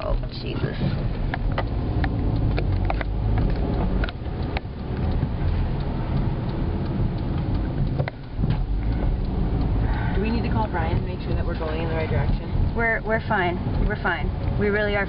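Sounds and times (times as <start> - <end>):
car engine and road rumble: 0.0 - 15.0
sharp clicks and knocks: 0.0 - 15.0.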